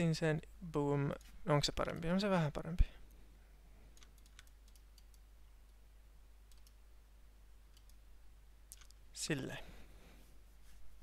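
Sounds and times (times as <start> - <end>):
mouse and keyboard clicks: 4.0 - 5.2, 6.5 - 6.8, 8.7 - 9.0.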